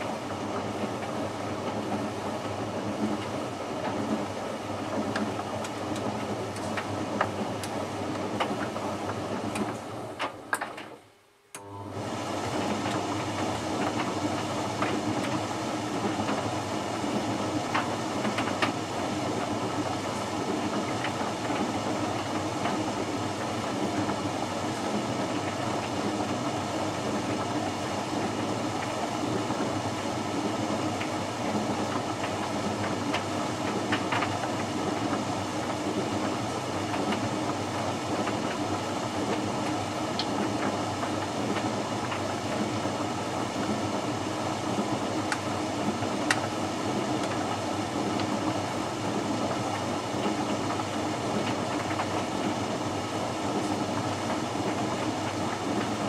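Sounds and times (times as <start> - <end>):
tumble dryer running: 0.0 - 10.9, 11.6 - 56.0
drum tumbling laundry: 0.0 - 11.0, 11.7 - 56.0.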